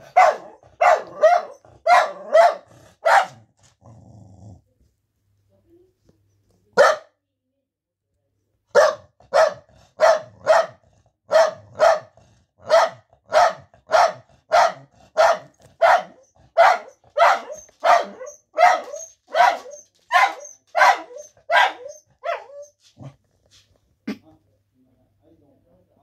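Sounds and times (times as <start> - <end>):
dog barking sharply: 0.0 - 3.4, 6.8 - 7.1, 8.8 - 22.6.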